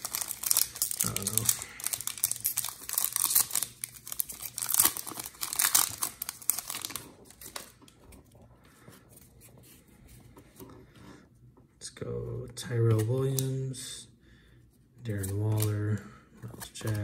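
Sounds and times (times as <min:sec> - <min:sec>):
wrapper crinkling and tearing: 0:00.0 - 0:08.0
cards rustling and clicking: 0:00.0 - 0:08.4, 0:15.1 - 0:17.0.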